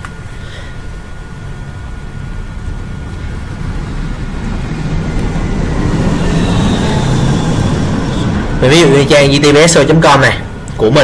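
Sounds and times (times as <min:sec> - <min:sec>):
passing vehicle engine: 0:01.9 - 0:10.7.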